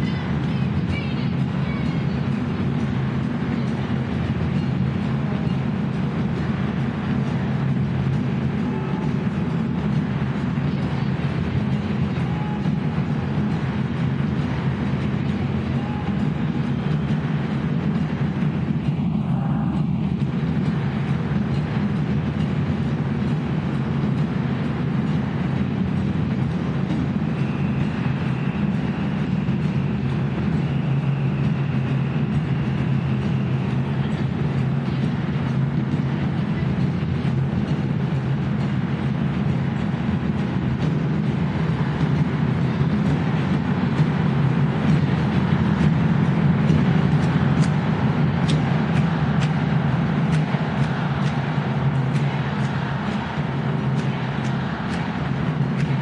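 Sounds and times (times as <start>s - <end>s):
large crowd din: 0.0s - 56.0s
crowd of protesters shouting: 43.0s - 56.0s.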